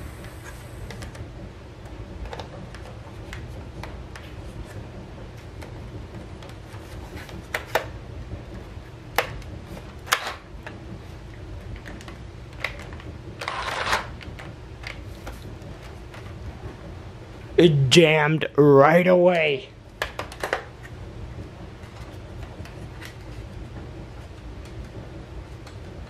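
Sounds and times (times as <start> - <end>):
toy blaster clicks and knocks: 12.6 - 14.2.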